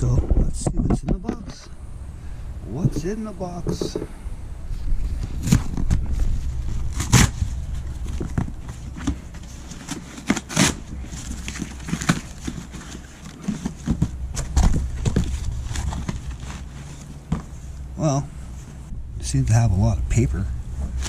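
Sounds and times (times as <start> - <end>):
cardboard box ripping: 6.9 - 7.5, 8.8 - 16.7.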